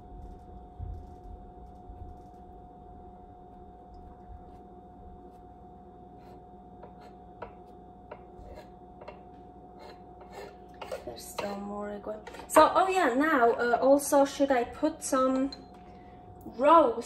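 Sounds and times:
steady background hum: 0.0 - 17.0
knife cutting egg on board: 9.8 - 11.6.

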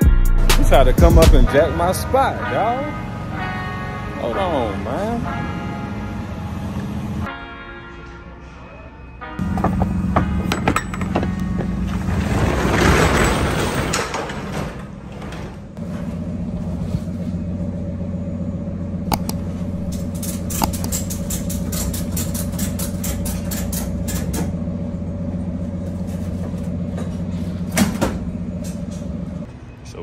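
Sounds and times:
engine idling: 15.8 - 29.5
ratchet clicking: 20.0 - 23.9.

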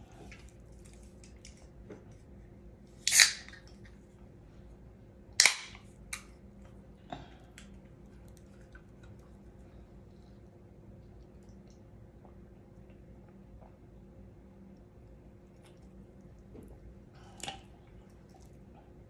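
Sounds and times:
can pull-tab crack: 3.1 - 3.6, 5.4 - 6.3.

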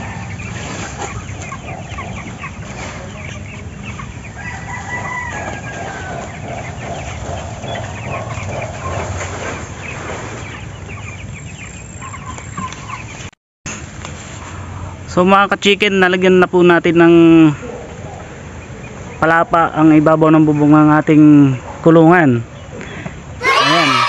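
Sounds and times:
chickens clucking: 0.0 - 13.4, 16.1 - 24.0
rooster crowing: 4.3 - 6.4, 23.4 - 24.0.

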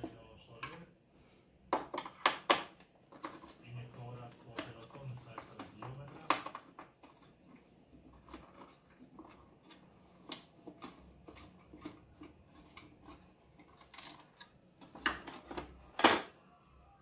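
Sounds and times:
plastic clicks and rubbing: 4.3 - 16.0.

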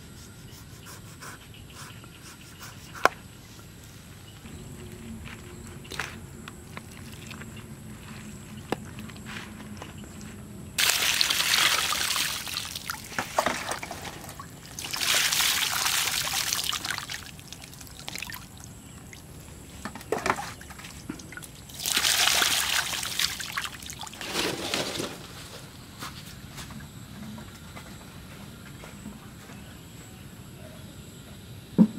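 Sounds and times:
water pouring and splashing: 6.7 - 7.6, 10.8 - 19.3, 20.2 - 25.2.

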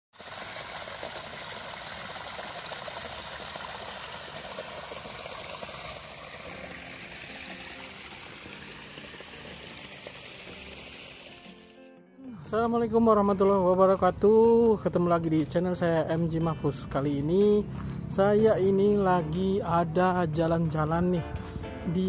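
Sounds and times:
water trickling down channel: 0.2 - 11.7
faint background music: 6.4 - 22.0.

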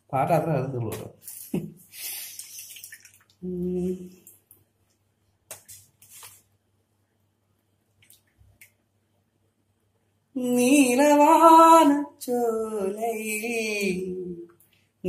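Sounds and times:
man singing unaccompanied: 10.4 - 14.5.

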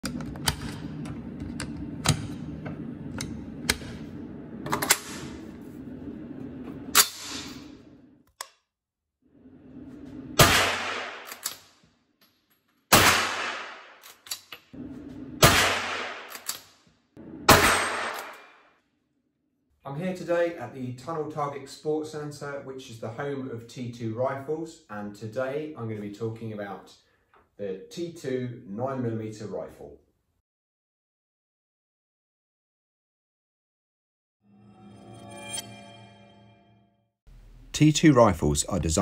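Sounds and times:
echoing rifle shots: 10.4 - 11.4, 12.9 - 14.0, 15.4 - 16.4, 17.2 - 18.6
cartridges clicking into magazine: 16.3 - 16.8.

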